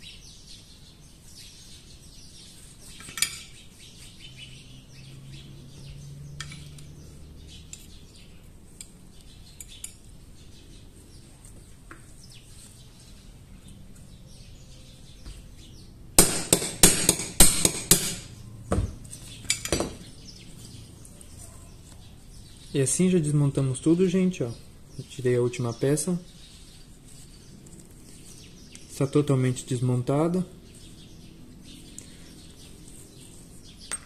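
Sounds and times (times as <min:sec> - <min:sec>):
hammer tapping metal punch: 0:16.2 - 0:18.3.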